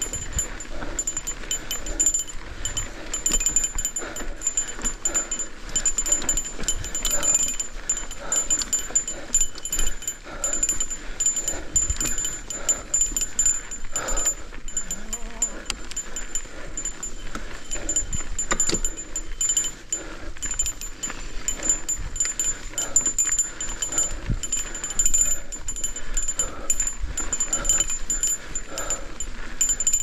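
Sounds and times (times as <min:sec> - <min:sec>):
bike rattling over bumps: 0:00.0 - 0:30.0.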